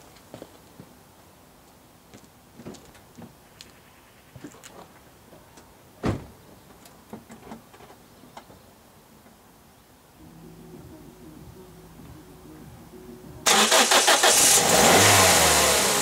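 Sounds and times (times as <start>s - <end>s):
car door thump: 6.0s - 6.3s.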